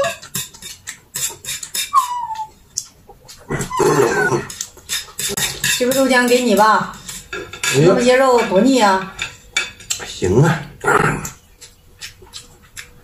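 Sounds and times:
utensils clicking against plates: 0.0s - 3.5s, 4.5s - 10.2s.

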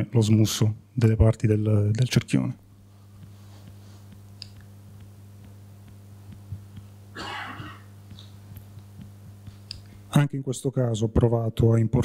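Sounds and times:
steady low hum: 0.0s - 12.0s
person coughing: 7.1s - 7.9s.

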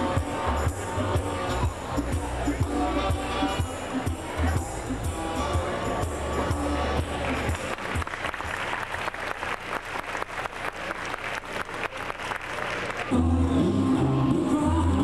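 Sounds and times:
music with heavy bass beat: 0.0s - 8.0s
audience applauding: 7.2s - 13.2s.

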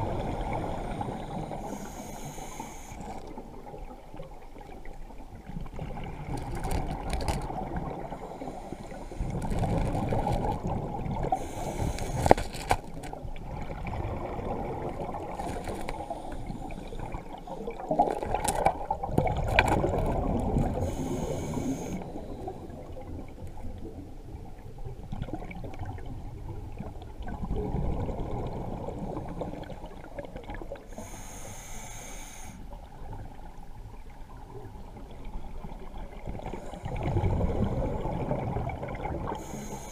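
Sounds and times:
hissing regulator inhale: 0.5s - 3.4s, 8.1s - 9.5s, 11.3s - 12.4s, 15.8s - 17.2s, 20.8s - 22.8s, 30.9s - 32.7s, 39.3s - 39.9s
bubbling exhaled air: 36.2s - 39.9s.

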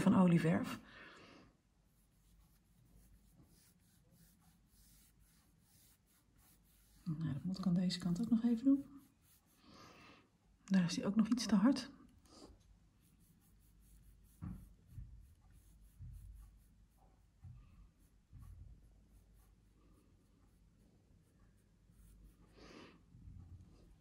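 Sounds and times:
paintbrush brushing over canvas: 1.8s - 9.9s, 12.3s - 22.6s
soft dull knocks: 14.4s - 16.4s.

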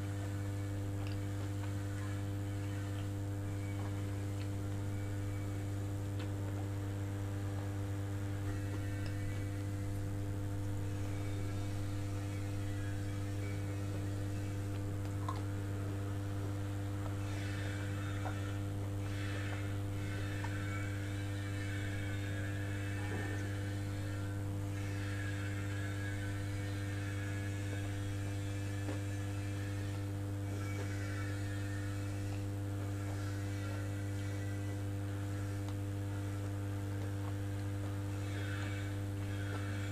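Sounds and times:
low electrical hum: 0.0s - 39.9s
faint chewing: 11.0s - 39.9s.

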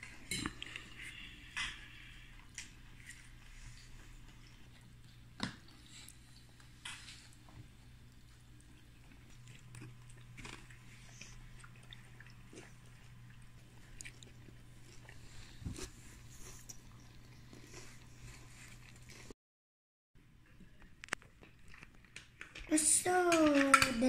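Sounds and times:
low steady hum: 0.0s - 19.3s
person chewing and biting: 4.5s - 19.3s.

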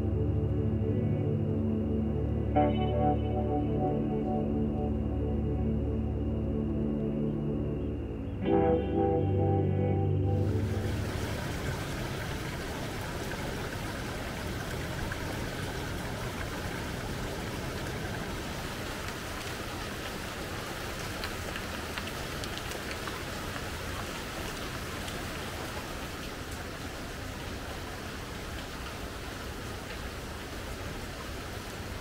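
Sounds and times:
running water rushing: 10.4s - 32.0s.

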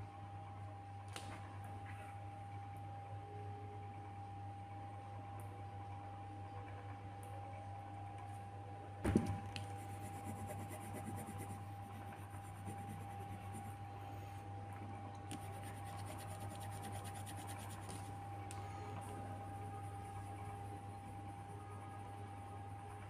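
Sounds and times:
steady low hum: 0.0s - 23.0s
thump: 9.0s - 9.4s
pencil scratching on paper: 9.8s - 13.7s, 15.4s - 18.1s.

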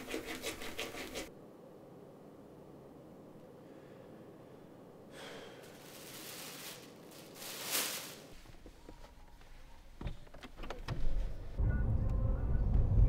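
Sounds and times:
plastic bag rustling: 5.4s - 8.6s.

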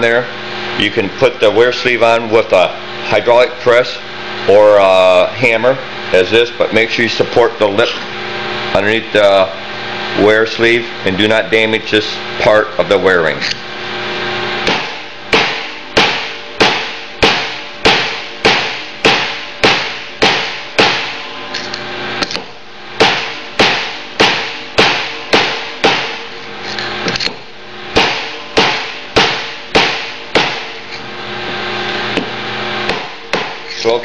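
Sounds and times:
hammer striking steel tube: 14.6s - 21.2s, 22.2s - 26.3s, 28.0s - 30.9s, 32.9s - 33.8s.

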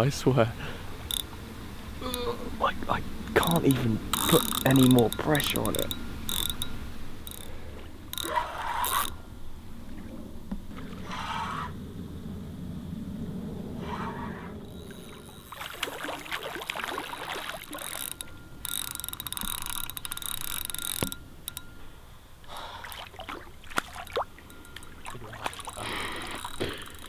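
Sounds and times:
faint whine: 0.0s - 27.0s
fishing reel ticking: 0.8s - 10.0s, 14.7s - 23.1s, 23.7s - 27.0s.

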